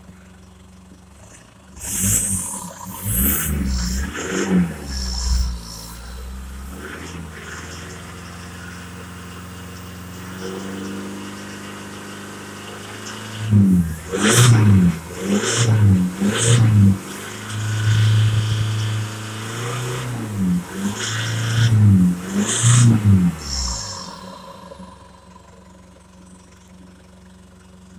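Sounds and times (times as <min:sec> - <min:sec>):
diesel engine revving: 0:01.2 - 0:26.3.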